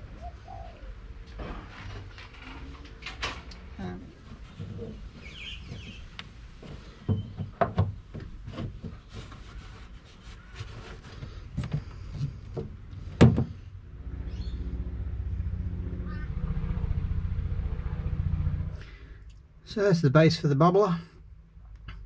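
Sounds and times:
steady low hum: 11.3s - 19.7s.

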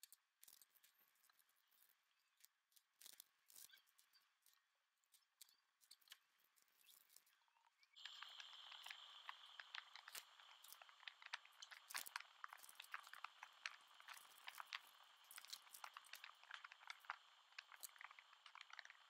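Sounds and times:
faint high hiss: 8.0s - 19.0s
plastic bags crinkling: 8.0s - 19.0s.

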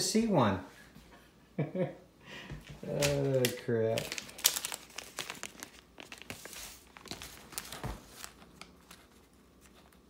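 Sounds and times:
plastic packaging crinkling: 2.8s - 10.0s.

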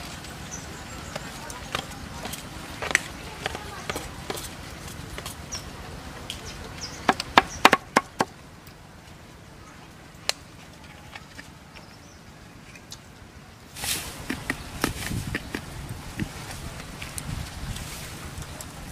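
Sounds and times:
cleaver chopping on wooden block: 7.0s - 8.3s, 14.2s - 16.3s.

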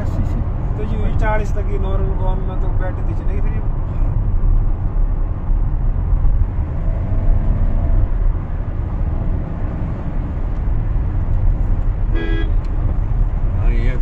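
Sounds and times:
car cabin road rumble: 0.0s - 14.0s.

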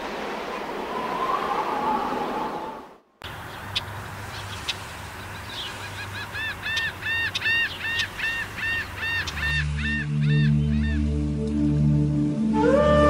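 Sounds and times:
bird calling: 0.5s - 11.1s
soft music: 9.5s - 13.0s.

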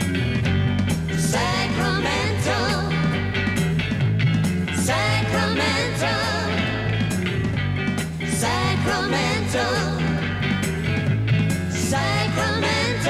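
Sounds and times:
pop band playing live: 0.0s - 13.0s
people singing: 1.1s - 3.5s, 4.7s - 7.2s, 8.2s - 10.6s, 11.7s - 13.0s.

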